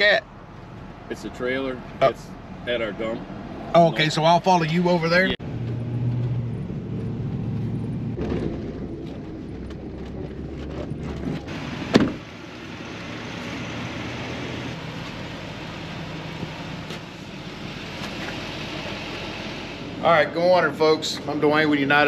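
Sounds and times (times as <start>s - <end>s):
truck engine running: 4.7s - 22.0s
sharp thump: 11.9s - 12.2s.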